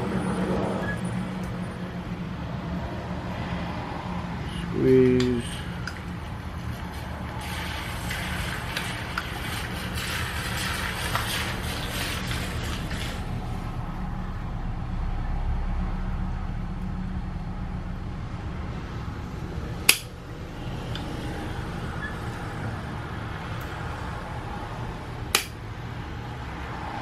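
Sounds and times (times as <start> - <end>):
steady low hum: 12.2 - 26.8.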